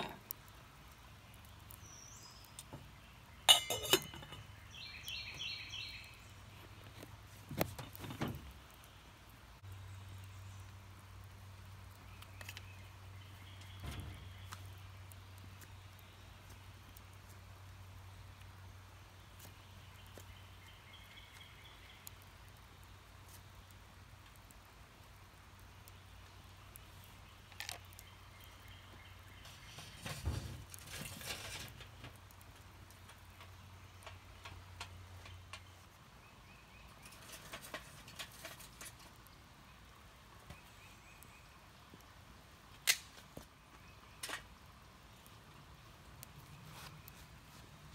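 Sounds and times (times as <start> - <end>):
wood fire crackling: 0.0 - 47.9
stick scraping against metal stove: 3.5 - 4.5, 29.4 - 32.0, 37.0 - 39.2.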